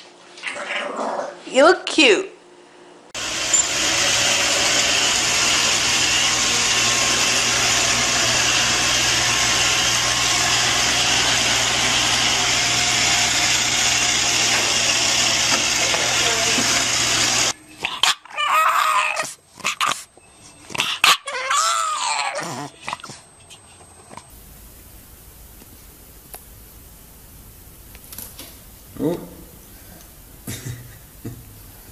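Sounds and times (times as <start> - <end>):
small electric motor whirring: 3.2 - 17.6.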